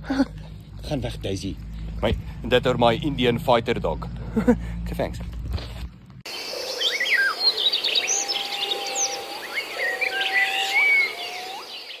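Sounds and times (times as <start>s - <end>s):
birds chirping and whistling: 6.3s - 12.0s
high insect buzz: 6.3s - 12.0s
long low rising whistles: 6.7s - 12.0s.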